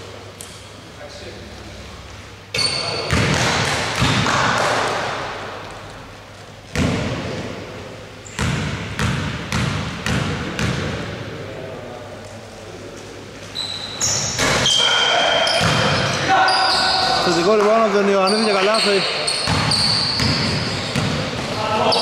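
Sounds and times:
ball striking rim: 0:02.6 - 0:05.3, 0:06.7 - 0:07.6, 0:08.3 - 0:11.1, 0:15.4 - 0:16.2, 0:19.3 - 0:21.6
basketball bouncing on wooden floor: 0:03.1 - 0:04.9, 0:06.7 - 0:07.4, 0:08.4 - 0:11.0, 0:19.4 - 0:21.5.

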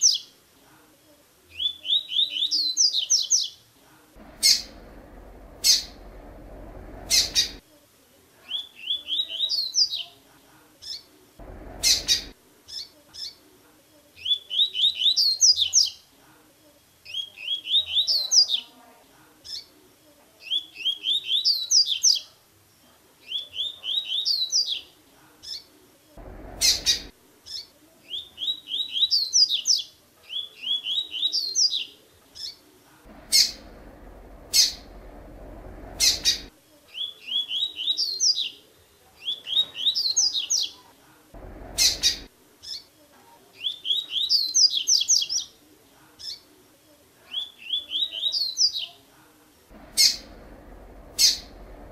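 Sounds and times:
bird whistling song: 0:01.6 - 0:03.5, 0:04.3 - 0:05.0, 0:05.6 - 0:07.6, 0:08.5 - 0:10.0, 0:11.6 - 0:13.4, 0:14.2 - 0:16.0, 0:17.1 - 0:18.2, 0:20.5 - 0:22.2, 0:26.5 - 0:31.9, 0:34.4 - 0:35.1, 0:35.9 - 0:38.5, 0:41.7 - 0:42.8, 0:43.6 - 0:45.5, 0:49.9 - 0:51.8
short sharp bird calls: 0:04.2 - 0:07.6, 0:10.9 - 0:13.4, 0:26.2 - 0:29.0, 0:33.1 - 0:36.5, 0:41.4 - 0:42.8, 0:49.7 - 0:51.9.

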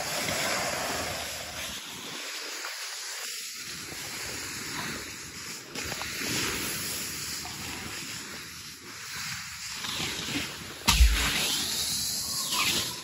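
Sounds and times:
skis hissing on snow: 0:00.0 - 0:13.0.

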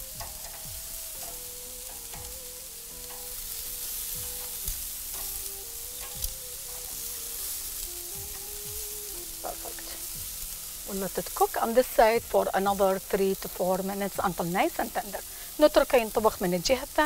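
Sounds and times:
kebabs sizzling on a grill: 0:00.0 - 0:17.0
metal tongs clicking: 0:00.1 - 0:07.1.

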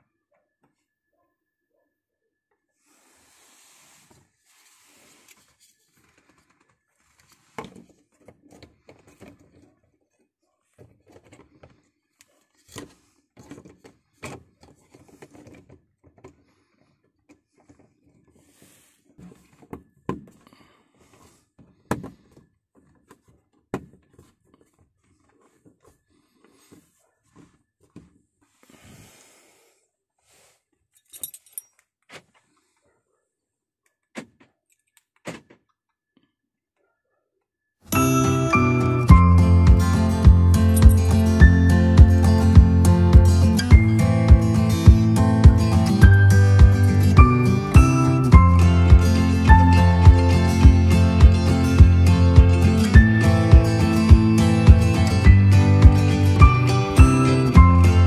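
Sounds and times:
soft rustling hisses: 0:02.8 - 0:05.8.

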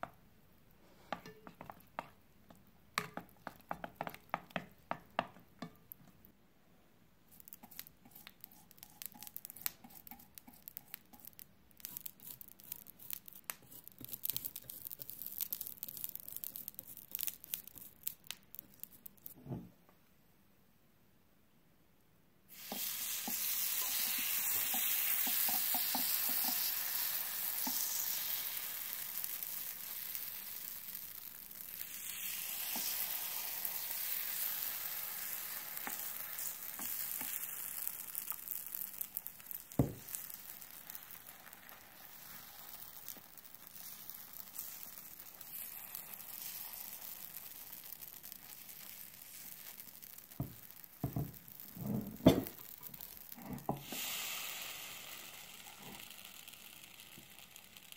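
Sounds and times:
plastic spoon tapping and scraping: 0:01.1 - 0:06.2, 0:07.4 - 0:19.7, 0:22.7 - 0:26.7, 0:36.8 - 0:37.4
batter sizzling on hot plate: 0:07.3 - 0:19.6, 0:22.5 - 0:57.9.

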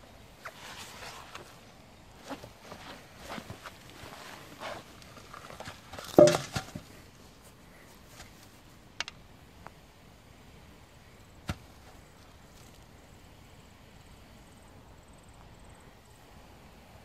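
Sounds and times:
root ball thumping into hole: 0:06.2 - 0:06.8.

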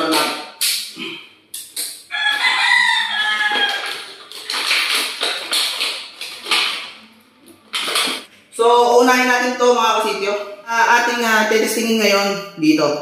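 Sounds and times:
rooster crowing: 0:02.1 - 0:04.2
plastic packaging crinkling: 0:03.2 - 0:08.3.

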